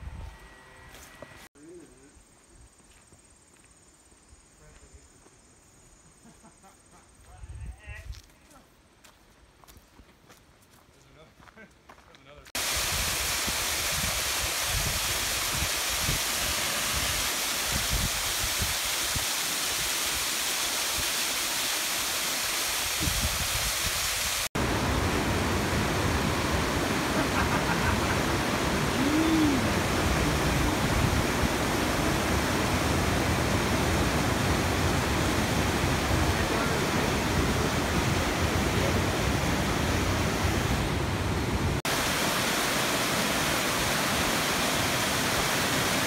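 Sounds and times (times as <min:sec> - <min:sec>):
waterfall splashing onto rocks: 0:12.6 - 0:40.3, 0:41.8 - 0:46.0
river rapids rushing: 0:24.6 - 0:46.0.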